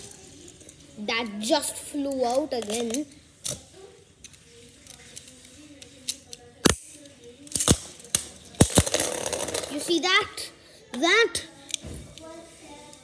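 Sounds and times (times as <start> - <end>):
plastic tops clacking: 7.5 - 10.0
spinning tops whirring: 8.3 - 10.1.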